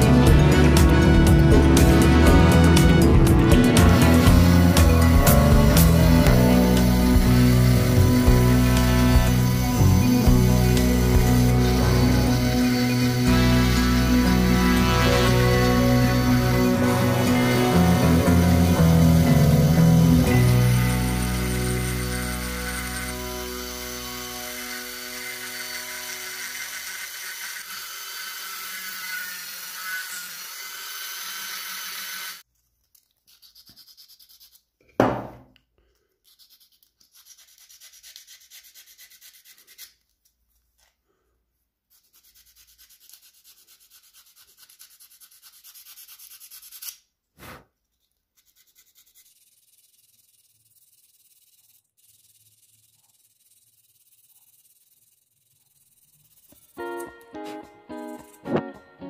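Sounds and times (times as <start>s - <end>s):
background music chord ringing: 0.0s - 21.4s, 56.8s - 59.0s
sandpaper rubbing on wood: 0.8s - 26.6s, 33.3s - 34.7s, 36.2s - 40.0s, 41.9s - 47.6s, 48.4s - 56.8s.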